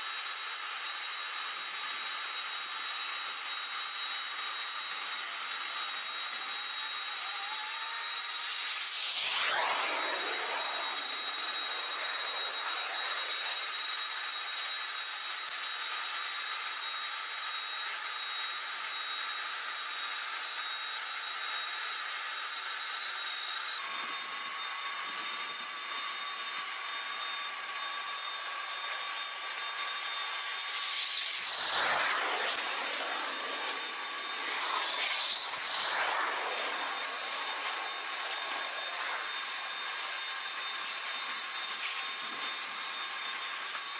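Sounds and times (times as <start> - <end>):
jet turbine whine and hiss: 0.0 - 43.9
thin steady tone: 8.7 - 15.0, 28.6 - 43.8.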